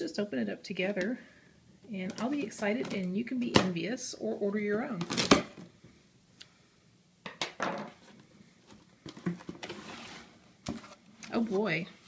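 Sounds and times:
cardboard and packaging rustling: 0:07.9 - 0:11.8.

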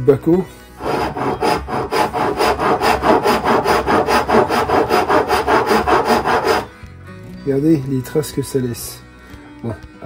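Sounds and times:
wood rasp scraping wood: 0:00.8 - 0:06.7.

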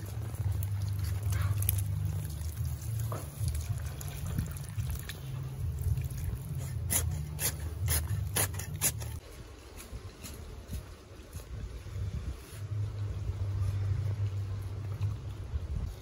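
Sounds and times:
water from hose splashing into bucket: 0:00.0 - 0:07.5
steady low rumble: 0:00.0 - 0:09.3, 0:11.6 - 0:16.0.

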